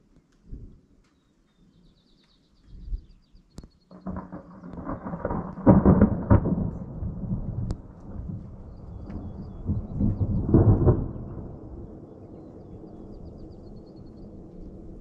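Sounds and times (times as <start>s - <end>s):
thunder rumbling and cracking: 3.9s - 15.0s.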